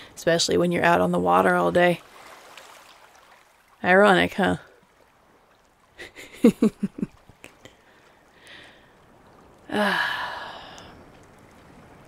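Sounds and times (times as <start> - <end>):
woman laughing: 6.0 - 7.2
woman sighing: 9.7 - 11.0.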